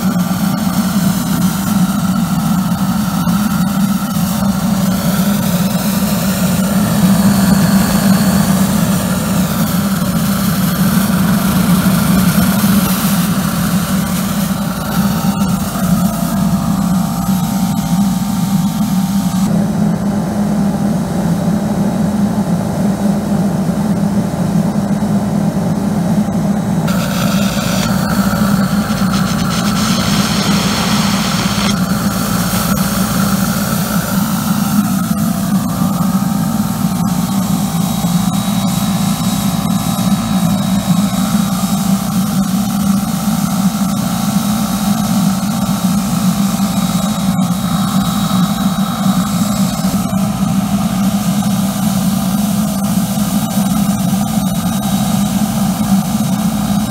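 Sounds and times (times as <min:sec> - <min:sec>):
steam jet hissing: 0:00.0 - 0:19.5, 0:26.9 - 0:52.6
steam boiler droning: 0:00.0 - 0:56.9.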